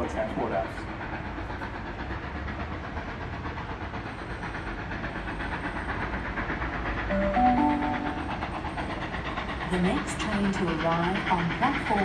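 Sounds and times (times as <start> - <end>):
steam locomotive hissing: 0.0 - 12.0
station pa chime: 7.1 - 8.2.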